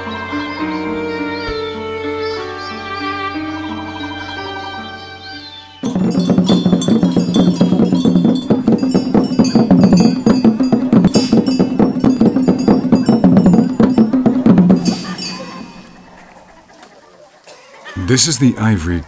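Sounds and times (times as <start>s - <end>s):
fast dense drumming: 5.8s - 16.1s
ringing metal bell strokes: 5.8s - 16.1s.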